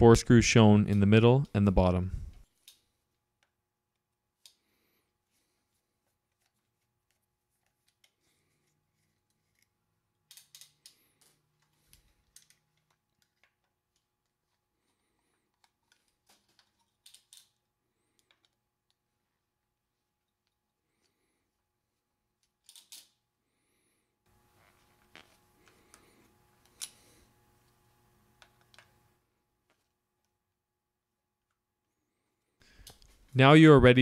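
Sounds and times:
screwdriver clicks and scrapes: 6.3 - 14.6, 22.4 - 23.2.

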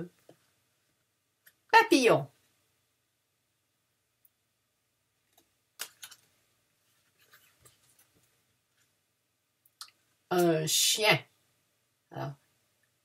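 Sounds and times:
cardboard cards clicking and rustling: 5.4 - 6.3.

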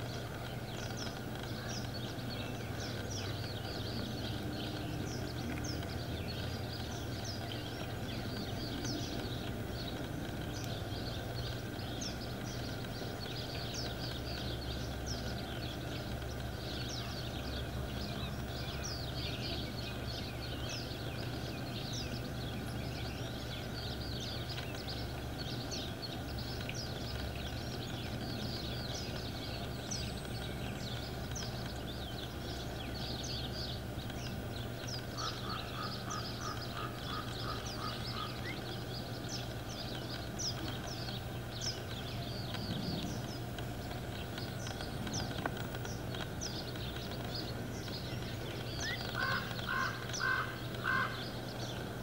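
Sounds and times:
steady low hum: 0.0 - 52.0
high chirping animal calls: 34.9 - 51.9.

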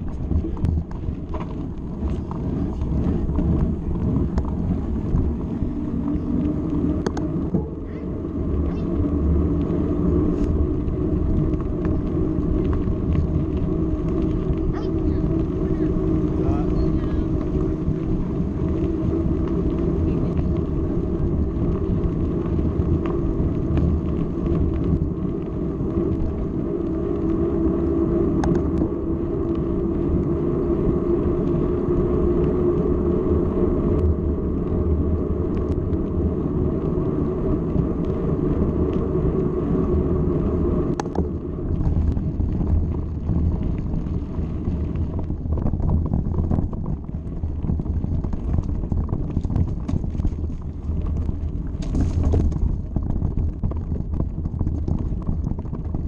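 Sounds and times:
bike tyres humming on pavement: 0.0 - 56.0
stones knocking under bike tyres: 40.9 - 56.0.

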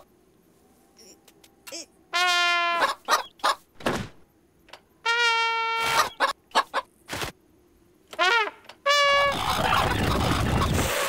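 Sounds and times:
cartoon chicken clucks: 2.7 - 3.6, 5.8 - 6.9, 9.3 - 10.9.

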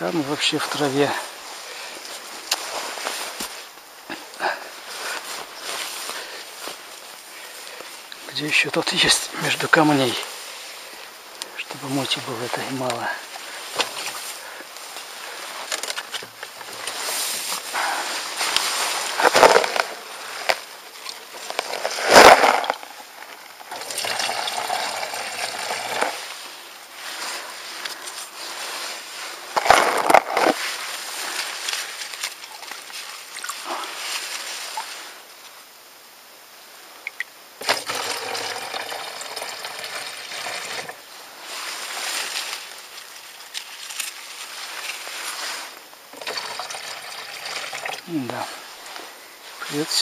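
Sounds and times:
water pouring into bottle: 23.7 - 26.2, 37.1 - 41.0, 46.2 - 48.2.

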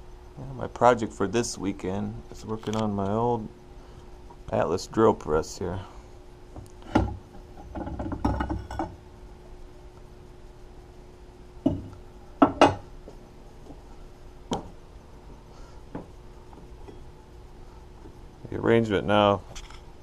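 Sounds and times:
metal clinks and knocks: 7.6 - 9.0.

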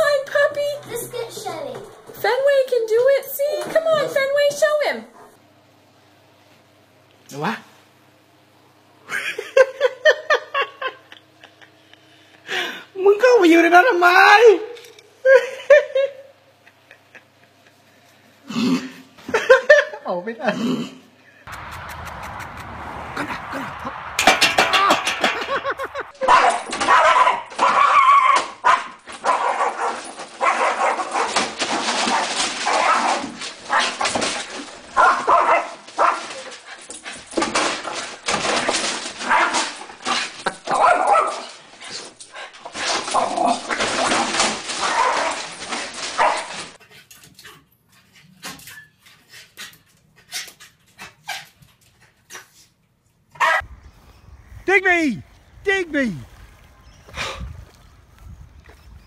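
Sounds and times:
dog barking and whimpering: 26.2 - 31.4, 35.0 - 36.5, 40.7 - 41.5, 44.8 - 45.4, 46.2 - 46.6, 53.4 - 53.6.

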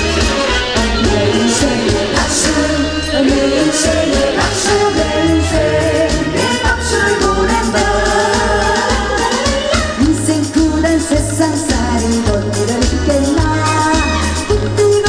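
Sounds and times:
backing music with bass and drums: 0.0 - 15.0
woman singing into a microphone: 0.8 - 15.0.

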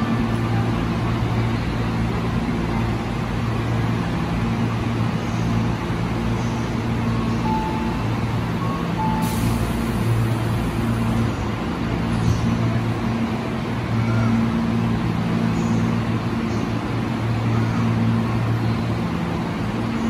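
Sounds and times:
train equipment humming: 0.0 - 20.0
short beeps: 7.4 - 9.6.

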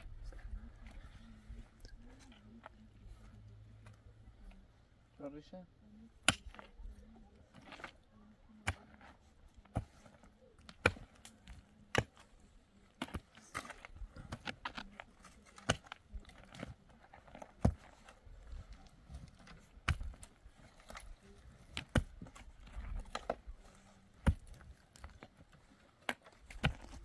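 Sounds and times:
shovels digging into dry dirt: 6.2 - 27.0.

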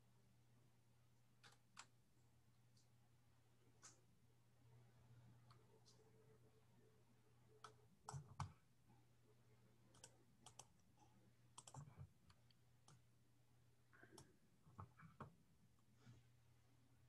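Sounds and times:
faint irregular clicks: 1.4 - 2.0, 9.9 - 13.1.

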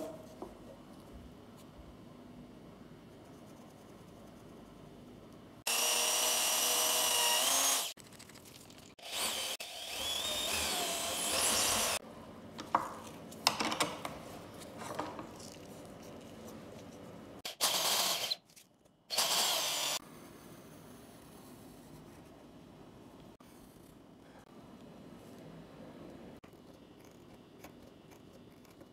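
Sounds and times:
drill whining with sanding drum: 9.0 - 12.0, 19.1 - 20.0.

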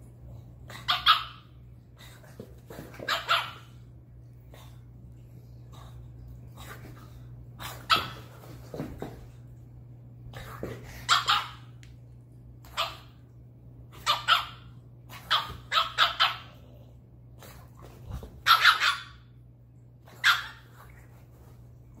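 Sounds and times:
dog barking: 0.8 - 1.5, 3.0 - 3.7, 11.1 - 11.7, 12.7 - 13.1, 14.0 - 16.6, 18.4 - 19.2, 20.2 - 20.7.

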